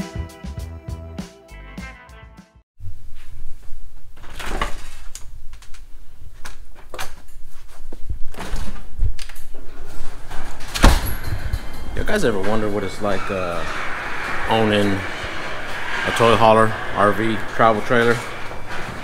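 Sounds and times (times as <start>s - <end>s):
low rumble: 11.0s - 19.0s.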